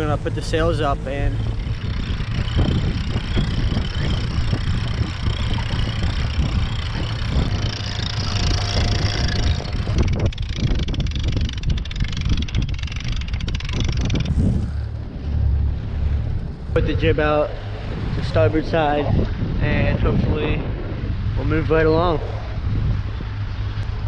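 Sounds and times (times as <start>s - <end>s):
wind buffeting microphone: 0.0s - 24.0s
rope clutches clicking: 1.7s - 14.8s.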